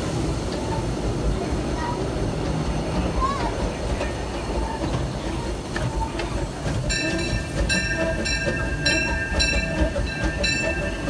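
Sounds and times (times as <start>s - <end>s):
train rumbling and clattering: 0.0s - 11.0s
steel wheels squealing: 2.9s - 11.0s.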